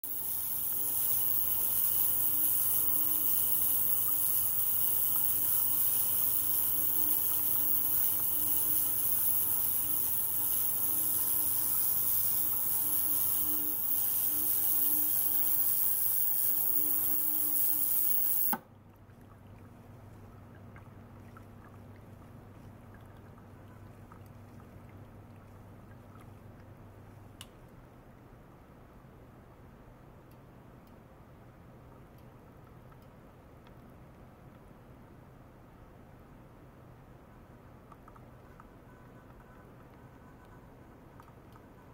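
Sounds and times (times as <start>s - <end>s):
ultrasonic cleaner hissing: 0.1s - 18.6s
water trickling: 0.1s - 27.4s.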